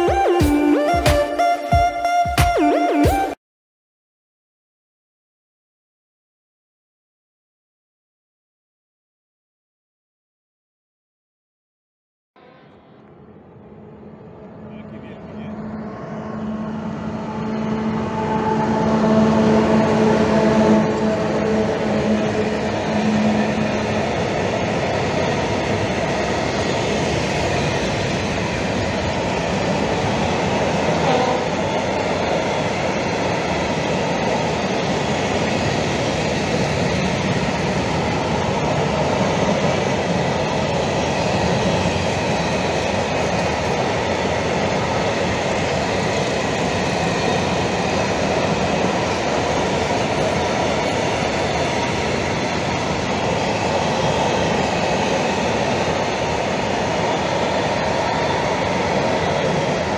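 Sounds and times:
train wheels on rails: 13.0 - 59.9.

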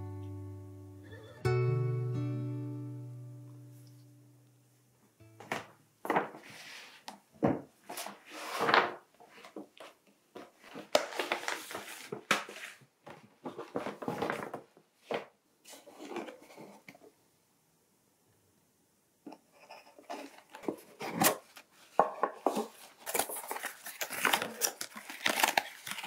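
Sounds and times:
paper rustling and crinkling: 5.5 - 17.0, 19.7 - 26.0.

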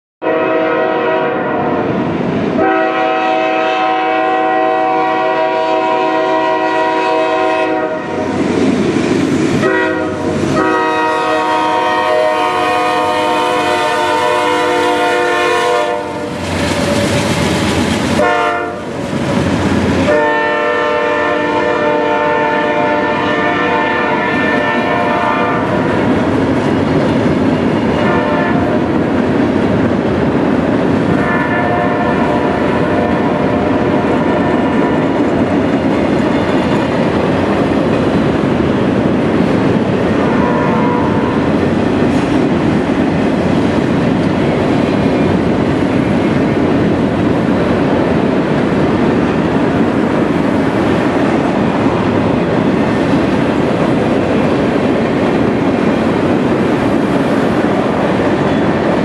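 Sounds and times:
locomotive air horn blasts: 0.2 - 1.8, 2.6 - 8.4, 9.6 - 16.4, 18.2 - 19.0, 20.0 - 25.8, 28.0 - 28.8, 31.2 - 34.6, 40.2 - 41.5
wind buffeting microphone: 1.4 - 59.0.

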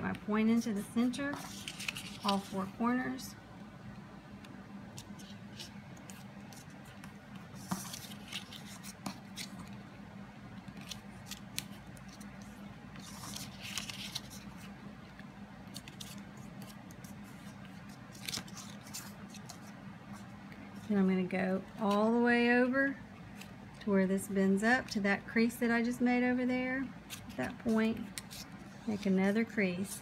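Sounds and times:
card stock rustling and crinkling: 0.6 - 3.2, 4.9 - 9.9, 10.6 - 21.0, 26.8 - 30.0.

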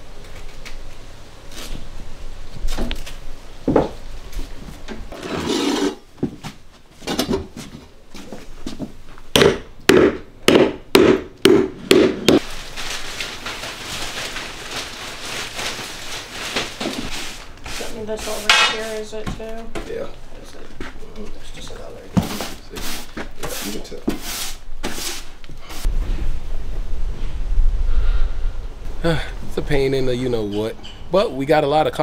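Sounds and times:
scraping and rubbing on wood: 5.1 - 6.0, 16.3 - 19.4, 20.8 - 25.9
sharp knocks: 9.3 - 12.4
wet mop swishing on tiles: 15.2 - 19.2, 22.2 - 25.9.

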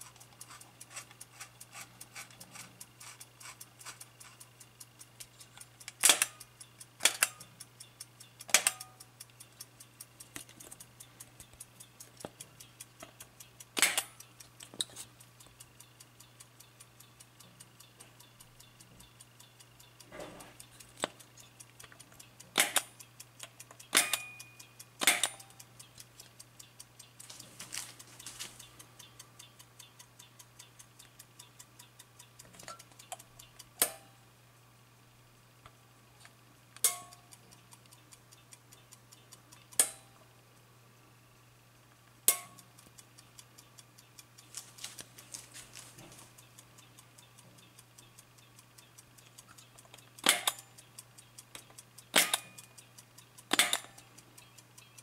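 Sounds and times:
sharp clicks of knobs pressed: 0.0 - 15.6, 18.8 - 27.2, 36.8 - 38.2, 49.2 - 55.0
clock ticking rapidly: 0.0 - 34.2, 36.8 - 40.2, 42.2 - 55.0.

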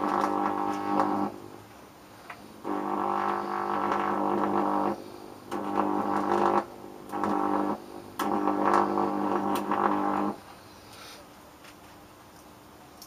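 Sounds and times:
high-voltage arc buzzing: 0.0 - 1.6, 2.5 - 10.4.

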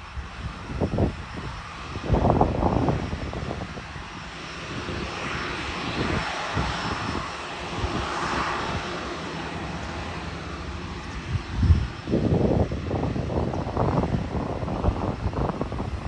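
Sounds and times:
faint high jet whine: 0.0 - 16.0
jet airliner taxiing: 0.0 - 16.0.

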